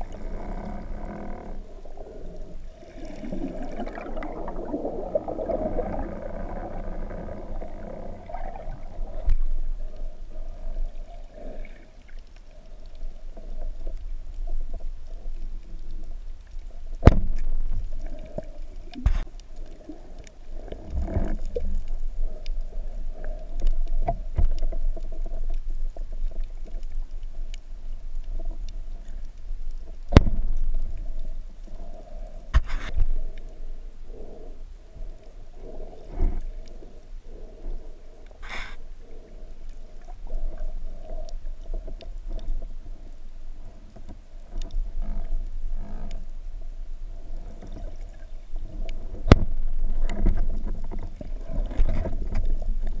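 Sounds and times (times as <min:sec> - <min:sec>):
underwater rumble of moving water: 0:00.0 - 0:53.0
rush of bubbles: 0:02.8 - 0:09.3.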